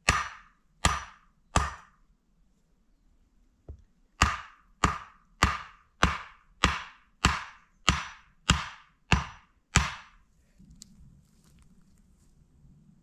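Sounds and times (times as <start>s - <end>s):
tool striking wood: 0.0s - 2.0s, 3.7s - 10.2s.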